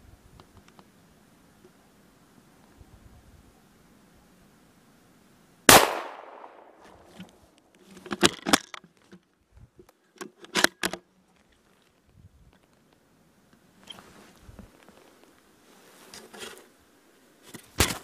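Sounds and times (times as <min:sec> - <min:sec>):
rifle shot: 0:05.7 - 0:07.1.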